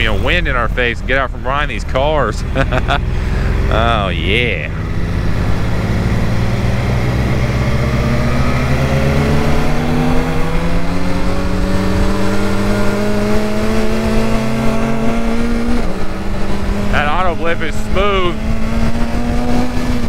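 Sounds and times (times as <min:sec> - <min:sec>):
steady rush of noise: 0:00.0 - 0:06.3
motorcycle engine accelerating: 0:00.0 - 0:20.0.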